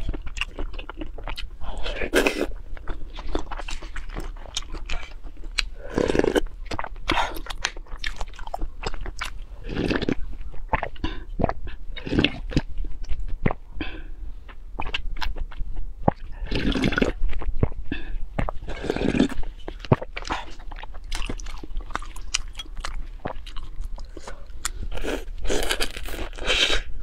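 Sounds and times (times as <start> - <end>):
wet chewing: 0.0 - 26.9
sipping and gulping liquid: 16.1 - 21.5.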